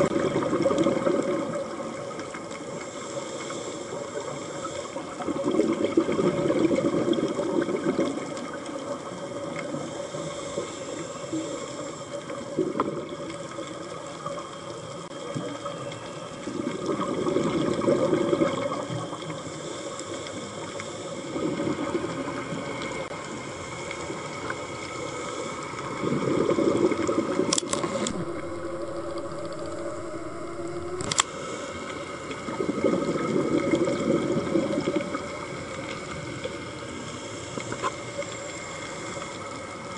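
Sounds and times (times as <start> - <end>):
exhaled bubbles underwater: 0.0 - 2.8, 4.6 - 10.1, 12.2 - 19.5, 21.2 - 31.2, 31.9 - 36.8
underwater hiss: 0.0 - 39.9
sharp clicks: 27.5 - 31.3.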